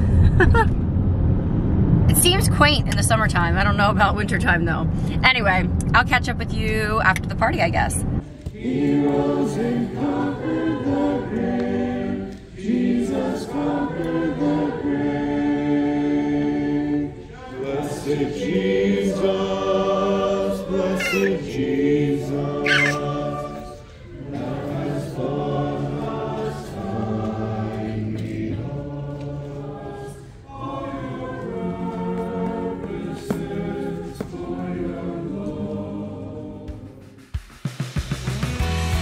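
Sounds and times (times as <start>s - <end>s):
congregation singing a hymn: 8.2s - 37.0s
short high squeaks: 21.0s - 21.4s, 22.6s - 23.1s.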